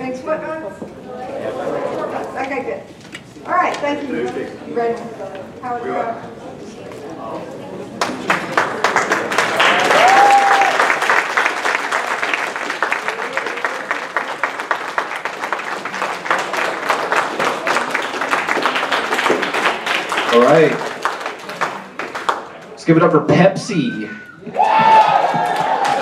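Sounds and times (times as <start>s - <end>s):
audience applauding: 8.0s - 22.8s, 24.6s - 26.0s.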